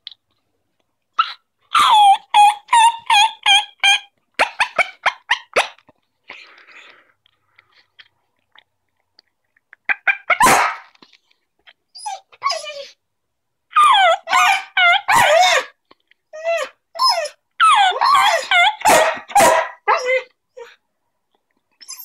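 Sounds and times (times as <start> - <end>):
dog howling and yipping: 1.2 - 4.0, 13.7 - 15.7, 16.4 - 20.8.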